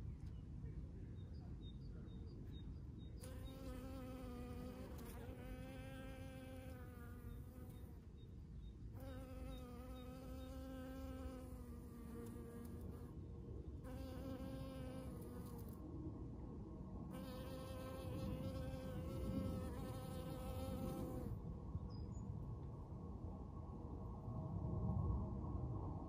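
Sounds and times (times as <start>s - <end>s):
bee buzzing in flight: 3.4s - 7.8s, 9.0s - 13.0s, 13.9s - 15.7s, 17.2s - 21.4s.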